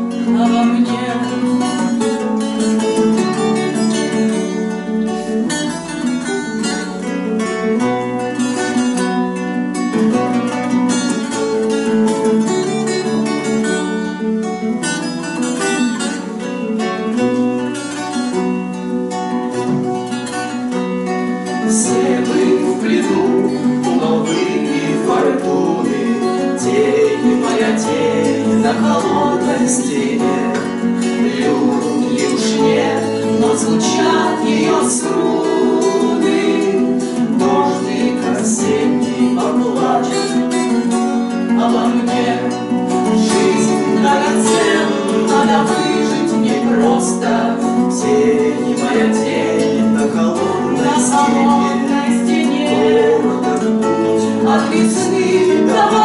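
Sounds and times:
person singing: 0:00.0 - 0:02.3, 0:21.6 - 0:40.8, 0:41.5 - 0:56.0
acoustic guitars strumming: 0:00.0 - 0:56.0.

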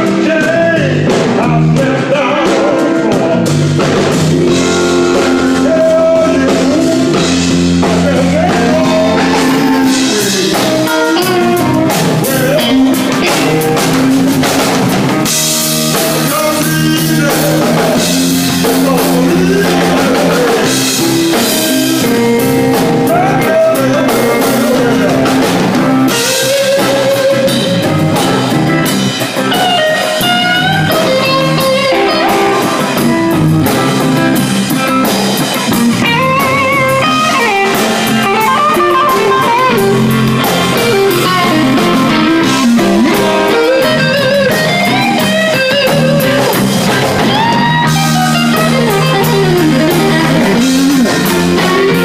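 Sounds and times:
bending lead guitar line: 0:00.0 - 0:52.0
electric blues band playing: 0:00.0 - 0:52.0.

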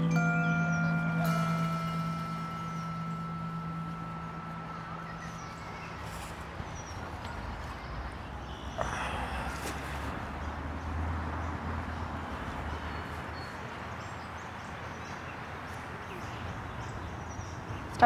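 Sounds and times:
faint high chirps: 0:00.0 - 0:08.0
distant traffic rumble: 0:00.0 - 0:18.0.

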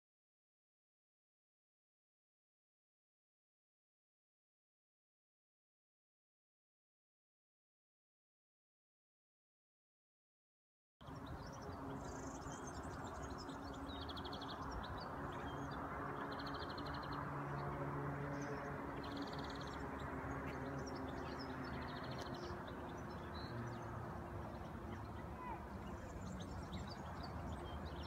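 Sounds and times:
wind: 0:11.0 - 0:28.0.

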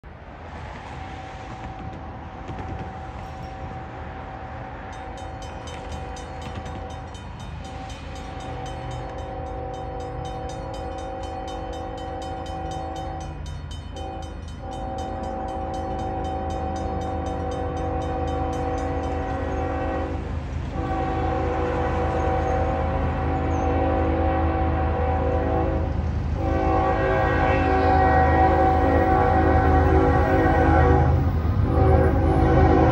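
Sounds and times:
train engine rumble: 0:00.0 - 0:32.9
crossing bell ringing: 0:03.0 - 0:04.0, 0:04.8 - 0:20.1
locomotive air horn blasts: 0:08.4 - 0:13.4, 0:14.0 - 0:32.9.

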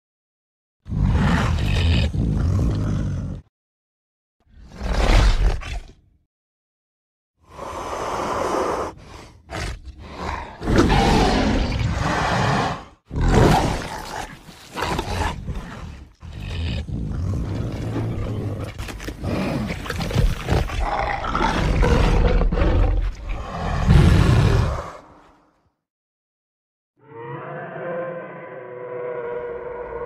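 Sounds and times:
dinosaur roars and growls: 0:00.9 - 0:03.5, 0:07.5 - 0:25.5, 0:27.0 - 0:30.0.

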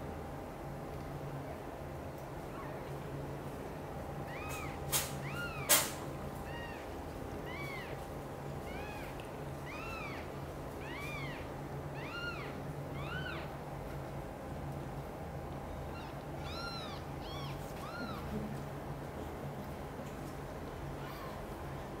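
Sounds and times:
kitten mewing: 0:16.0 - 0:18.3.

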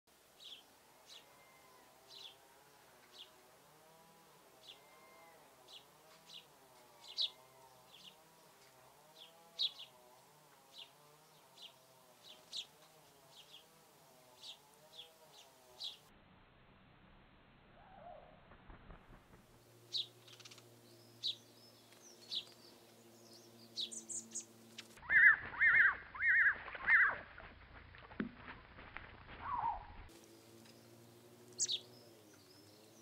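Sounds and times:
short sharp bird calls: 0:23.8 - 0:27.2, 0:29.4 - 0:30.0.

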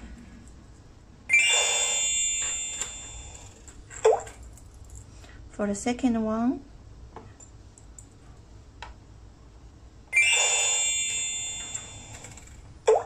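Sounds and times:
security alarm electronic chime: 0:01.3 - 0:03.6, 0:10.1 - 0:12.4.

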